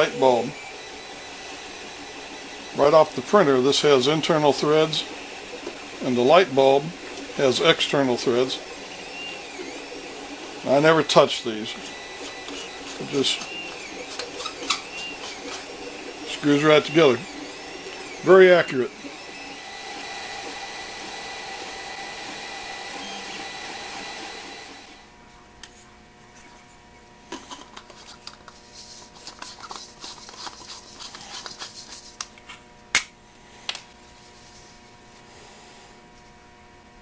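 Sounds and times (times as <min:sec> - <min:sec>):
printer fans and motors whirring: 0:00.0 - 0:31.9
plastic parts clicking and scraping: 0:27.3 - 0:32.4.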